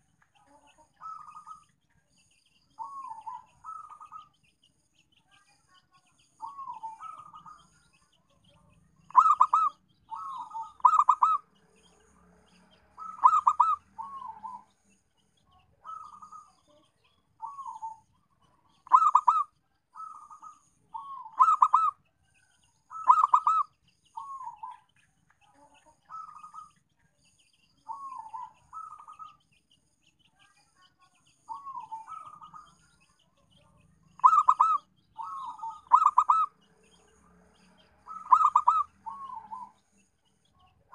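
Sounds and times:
dove cooing: 1.0 - 1.6, 2.8 - 4.3, 6.4 - 7.6, 9.1 - 11.5, 13.0 - 14.7, 15.8 - 16.5, 17.4 - 18.0, 18.8 - 22.0, 22.9 - 24.8, 27.9 - 29.4, 31.5 - 32.7, 34.2 - 36.6, 38.0 - 39.8.

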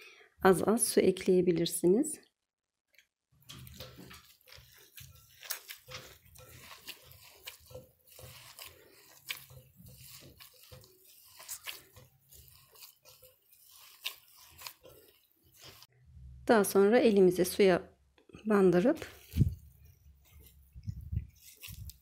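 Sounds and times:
hands squishing wet dough: 2.9 - 15.9, 18.8 - 22.0.

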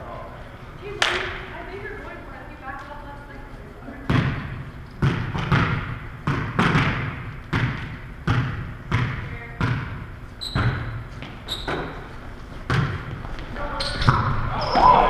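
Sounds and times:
volleyball smacks echoing: 1.0 - 1.5, 4.0 - 11.0, 12.7 - 13.1
sneaker squeaks: 10.3 - 12.3, 13.2 - 15.0.

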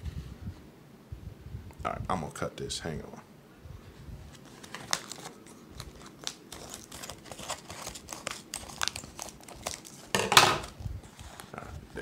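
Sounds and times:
plastic crinkling: 4.3 - 12.0.

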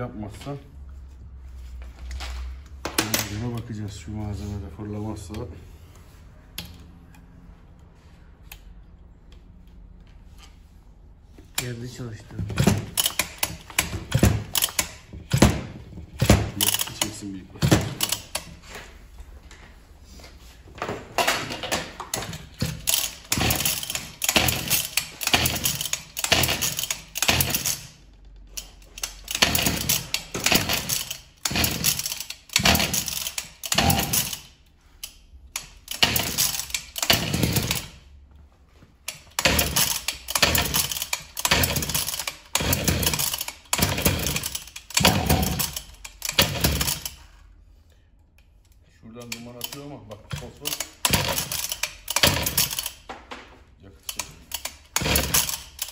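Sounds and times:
recoil starter pulls: 11.5 - 18.6, 21.3 - 38.0, 39.1 - 47.3, 49.1 - 53.1, 54.0 - 55.9
engine turning over: 22.1 - 27.9, 39.3 - 47.2.

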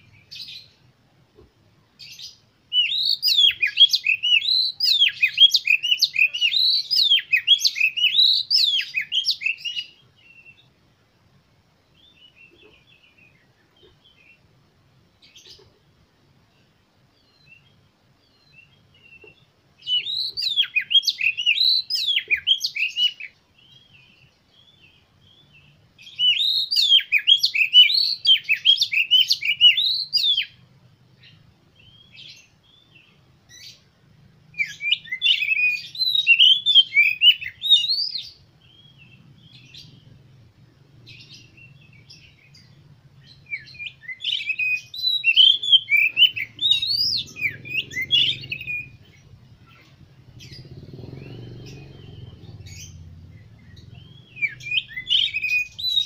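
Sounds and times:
bird singing whistled phrases: 2.1 - 10.6, 19.8 - 24.1, 26.0 - 30.6, 34.6 - 40.0, 41.1 - 49.2, 50.4 - 56.0.

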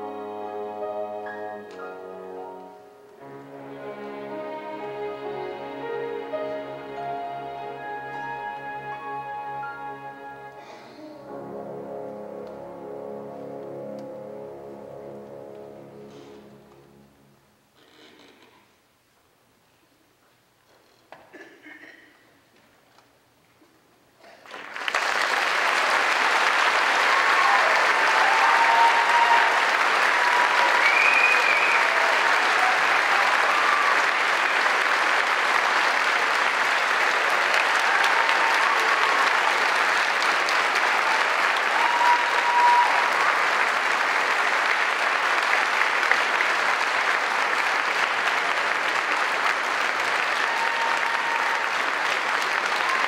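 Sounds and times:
audience applauding: 24.3 - 53.0.

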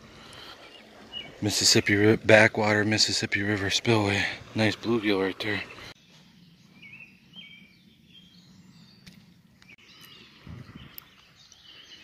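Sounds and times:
water rushing: 0.0 - 6.0
songbird chirping: 0.2 - 3.8, 4.6 - 12.0.

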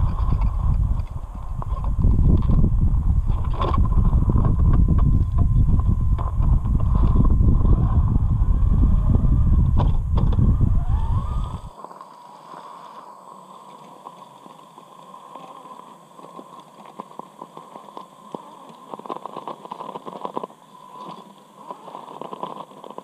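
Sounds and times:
loud low rumble: 0.0 - 11.7
electric motor and gearbox whining: 0.0 - 23.0
tyres crunching over loose shale: 13.7 - 23.0.

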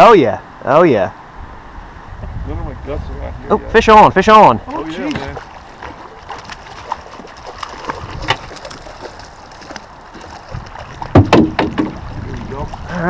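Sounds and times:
river water rushing: 4.0 - 13.0
loud sharp thump: 11.2 - 12.0.

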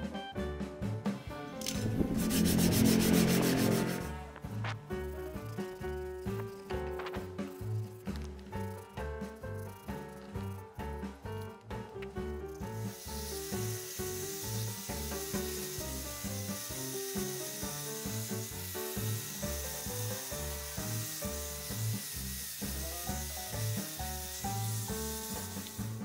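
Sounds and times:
power sander whine and hiss: 1.6 - 4.7, 12.6 - 26.0.

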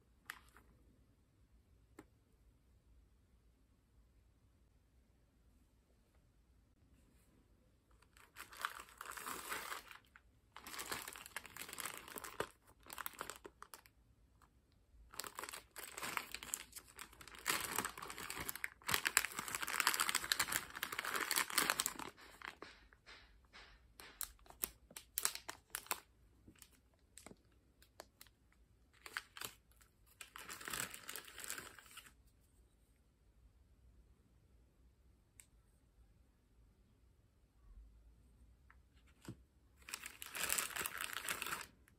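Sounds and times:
plastic bag crinkling: 8.0 - 13.9, 15.1 - 23.2, 29.0 - 32.1, 39.8 - 41.9.

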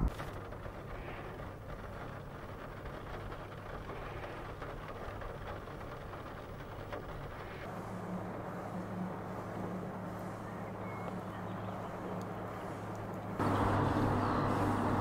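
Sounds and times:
rain on car windscreen: 0.0 - 10.4
low engine hum: 0.0 - 15.0.

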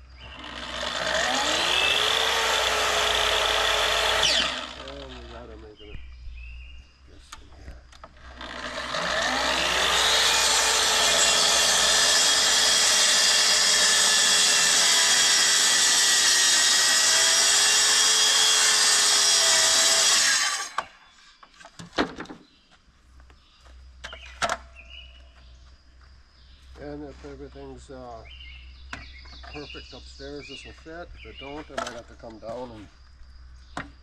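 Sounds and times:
saw blade cutting lumber: 0.2 - 5.5, 8.2 - 21.0
track saw motor whine: 0.2 - 5.5, 8.2 - 21.0.

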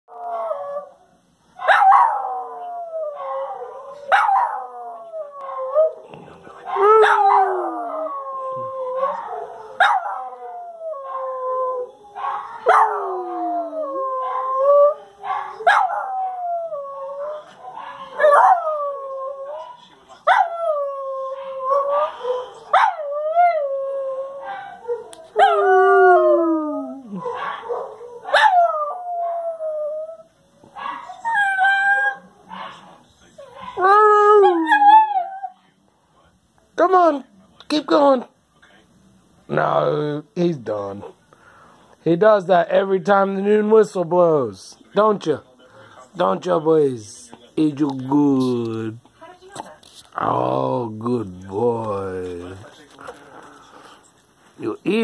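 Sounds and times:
dog howling: 1.6 - 6.0, 6.7 - 32.8, 33.4 - 35.6.

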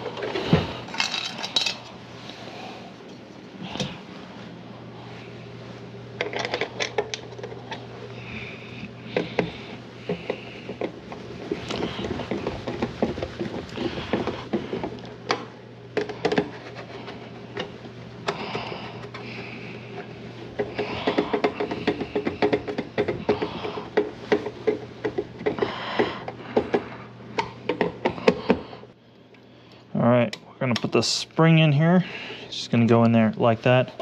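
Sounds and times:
plastic parts clicking and rattling: 0.0 - 1.9, 6.2 - 7.8
steady low hum: 0.0 - 34.0.

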